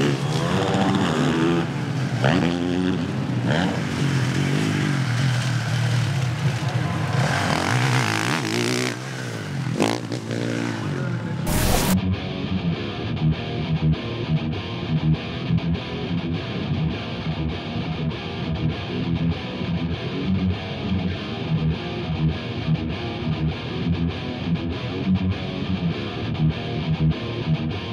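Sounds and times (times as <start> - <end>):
steady beat: 11.5 - 12.0
distorted electric guitar strumming: 11.5 - 27.9.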